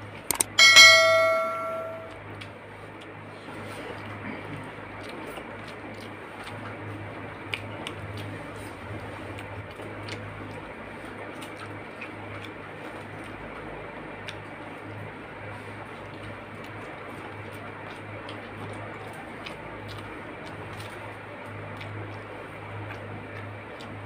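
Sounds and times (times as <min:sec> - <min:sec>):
low hum: 0:00.3 - 0:02.2.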